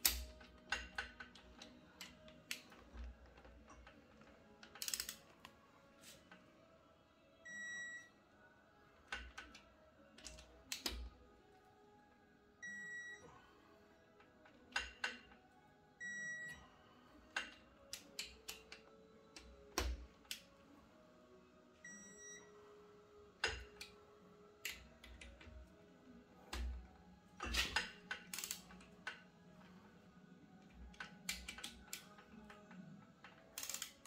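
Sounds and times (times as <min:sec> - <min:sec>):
metal engine parts clicking: 0:00.0 - 0:05.2, 0:27.4 - 0:29.3, 0:30.8 - 0:34.0.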